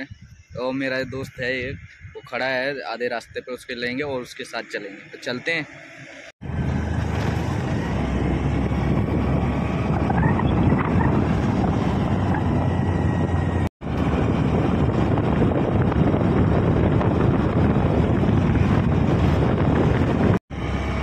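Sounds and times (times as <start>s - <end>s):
wind rushing over microphone: 0.0s - 4.3s, 6.4s - 21.0s
scooter engine: 20.5s - 21.0s.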